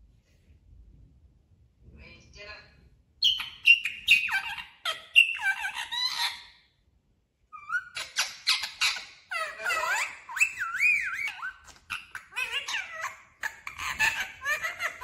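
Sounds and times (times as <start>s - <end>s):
parakeet warble: 3.2s - 6.5s, 7.6s - 15.0s
parakeet chattering calls: 3.2s - 6.6s, 7.6s - 15.0s.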